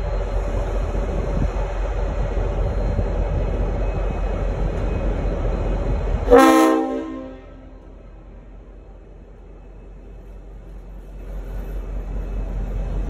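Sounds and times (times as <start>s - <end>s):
diesel locomotive engine rumbling: 0.0s - 13.0s
multi-chime locomotive horn: 6.3s - 7.9s.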